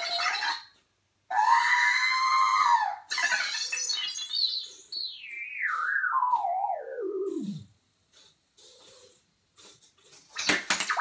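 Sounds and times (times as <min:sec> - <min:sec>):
robot chirps: 0:03.1 - 0:07.7
robot wavering tone: 0:03.6 - 0:07.7
warbling whistle sliding down: 0:05.0 - 0:07.7.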